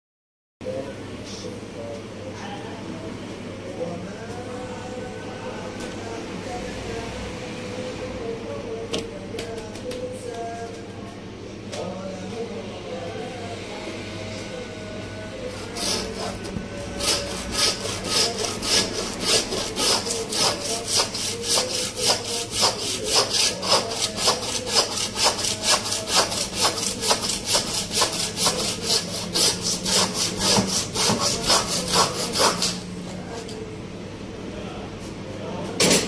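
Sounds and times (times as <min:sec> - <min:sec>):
hand bone saw rasping through meat: 0:15.5 - 0:32.8.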